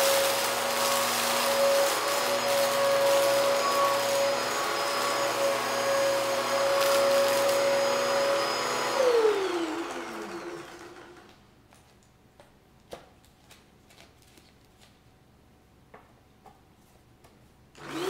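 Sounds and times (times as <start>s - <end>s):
vacuum cleaner winding down: 0.0s - 11.4s, 17.8s - 18.0s.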